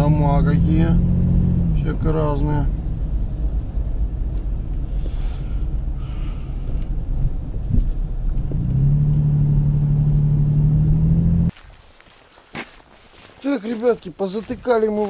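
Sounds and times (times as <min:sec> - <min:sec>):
car engine and road rumble: 0:00.0 - 0:11.6.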